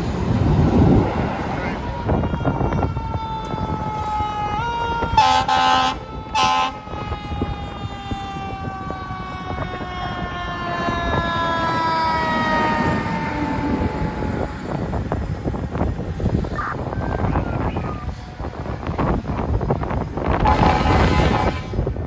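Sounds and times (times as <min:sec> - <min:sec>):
siren winding down: 0:01.4 - 0:15.6
air horn blasts: 0:05.2 - 0:07.1, 0:20.3 - 0:22.0.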